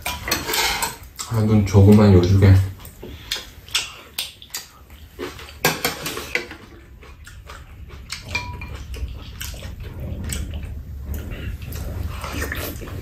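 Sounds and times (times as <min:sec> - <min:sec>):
utensils clinking against bowls: 0:00.0 - 0:02.3, 0:08.2 - 0:08.9
low steady rumble: 0:06.6 - 0:13.0.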